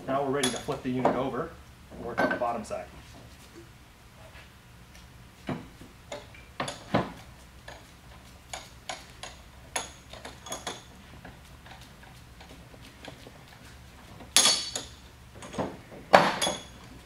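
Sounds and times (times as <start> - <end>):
metal knocks and clinks: 0.4 - 0.8, 8.5 - 10.9, 14.3 - 16.9.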